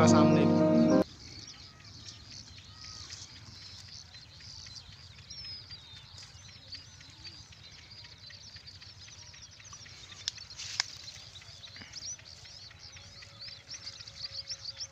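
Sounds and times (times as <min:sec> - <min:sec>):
small birds chirping: 0:00.0 - 0:14.9.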